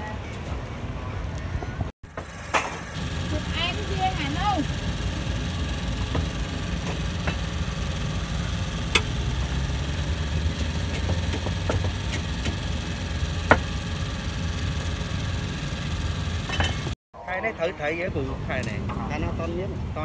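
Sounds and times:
engine rumbling: 0.0 - 20.0.

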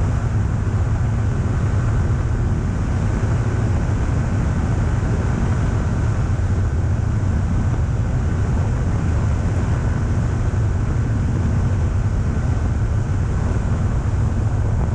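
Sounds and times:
aircraft engine and propeller: 0.0 - 14.9
faint steady whine: 0.0 - 14.9
wind rushing over microphone: 0.0 - 14.9.

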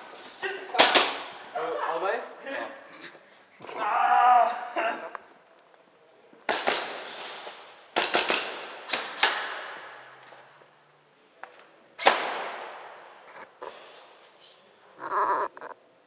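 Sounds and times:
airsoft gun shots echoing: 6.5 - 7.4, 8.0 - 10.0, 12.0 - 12.9.

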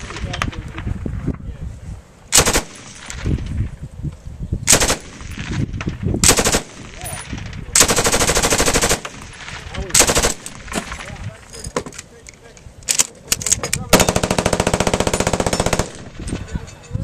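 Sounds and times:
machine gun firing bursts: 2.4 - 3.2, 4.7 - 5.6, 6.2 - 7.0, 7.8 - 11.0, 13.9 - 16.2.

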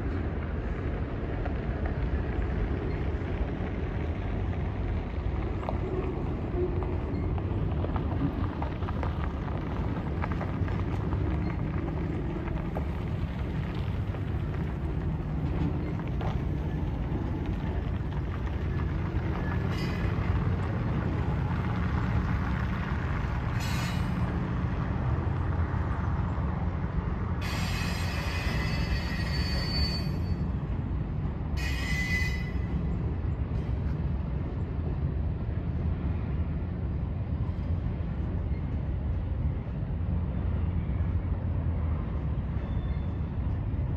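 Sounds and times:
train rumbling over bridge: 0.0 - 43.9
high wheel squeal: 19.6 - 20.3, 23.5 - 24.4, 27.4 - 30.5, 31.6 - 32.8.

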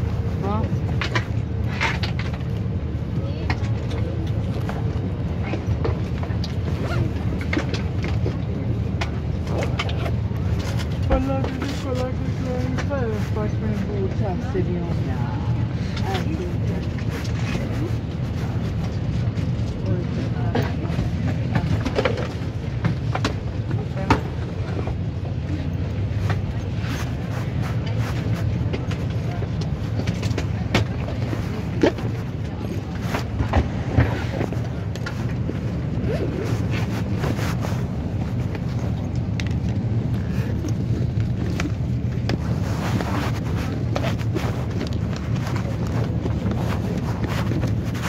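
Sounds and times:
airliner cabin rumble: 0.0 - 48.0.

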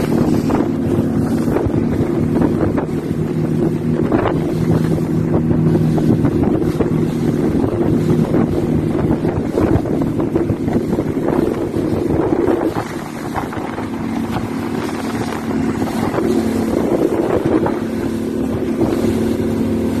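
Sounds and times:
motorboat engine drone: 0.0 - 20.0
water rushing: 0.0 - 20.0
wind buffeting microphone: 0.0 - 20.0.

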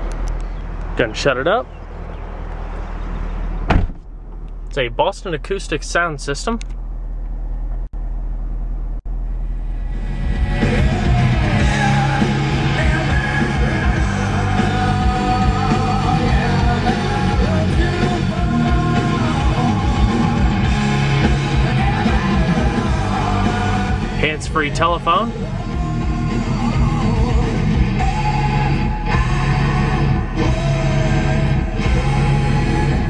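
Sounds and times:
rock music with singing: 9.9 - 33.0.

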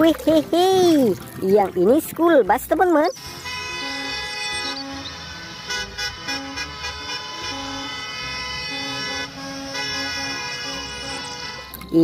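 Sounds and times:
steady horn-like tone: 3.2 - 11.8.

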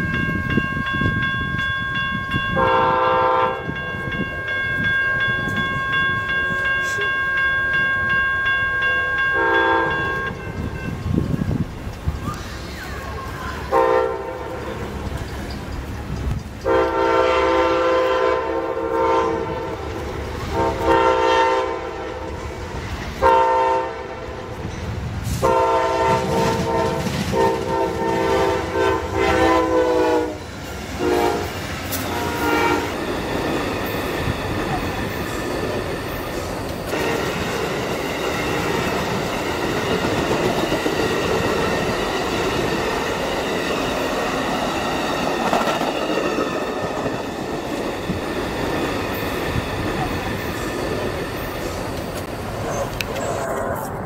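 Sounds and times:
train passing: 0.0 - 54.0
train horn blasts: 2.5 - 3.8, 9.3 - 10.4, 13.7 - 14.7, 16.6 - 22.4, 23.2 - 24.5, 25.4 - 33.0, 36.9 - 37.6.

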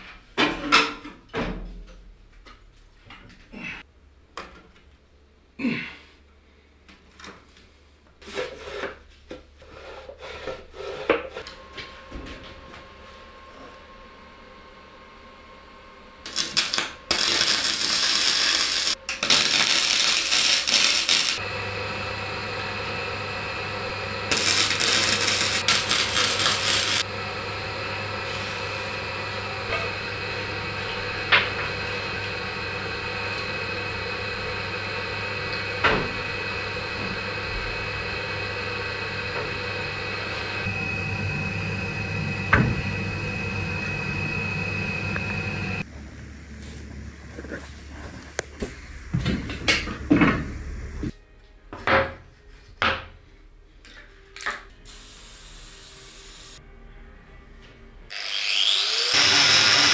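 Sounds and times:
power tool grinding: 16.3 - 45.8, 58.1 - 59.9
steady motor hum: 21.1 - 51.1.

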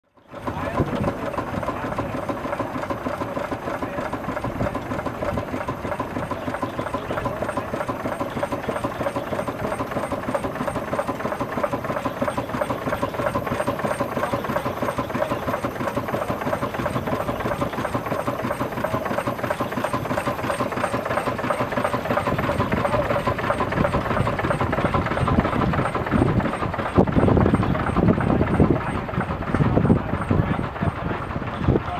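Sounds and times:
steam engine running sawmill: 0.0 - 31.9.

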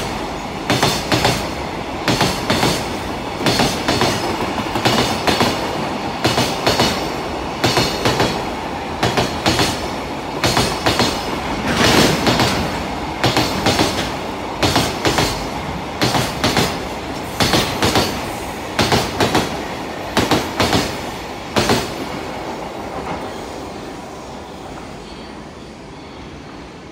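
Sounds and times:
train wheels clattering over rail joints: 10.4 - 19.6.

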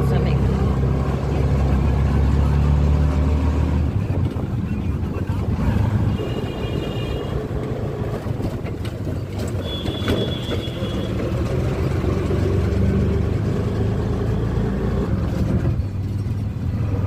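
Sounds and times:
auto-rickshaw engine humming: 0.0 - 17.0
road noise: 0.0 - 17.0.

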